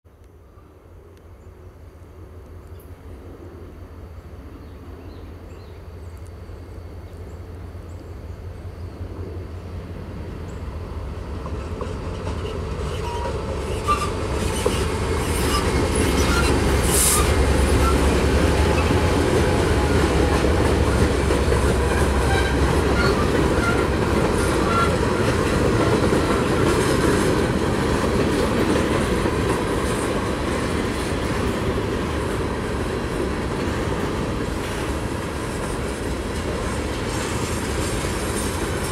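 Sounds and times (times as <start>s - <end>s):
diesel locomotive engine rumble: 0.2s - 38.9s
train wheels clicking over joints: 11.2s - 38.9s
wheel squeals: 12.4s - 19.1s, 21.8s - 25.5s.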